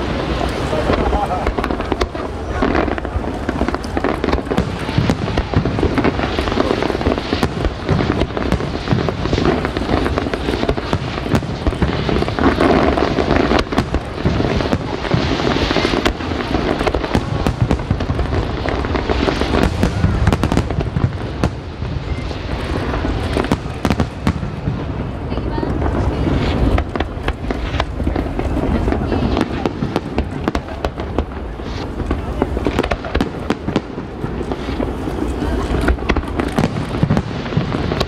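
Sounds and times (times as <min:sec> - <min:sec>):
fireworks bangs and crackles: 0:00.0 - 0:38.0.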